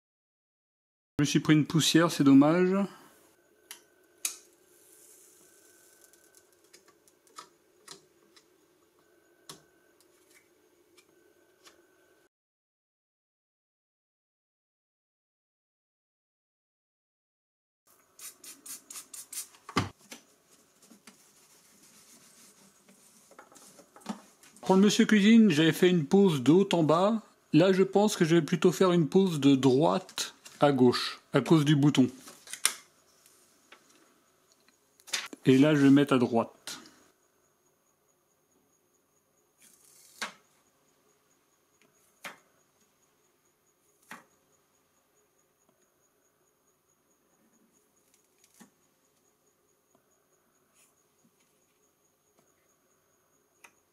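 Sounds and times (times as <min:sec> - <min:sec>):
spray bottle hissing: 0:18.0 - 0:19.7
cloth rubbing on screen: 0:20.3 - 0:24.4
plastic film clicks: 0:32.4 - 0:32.8.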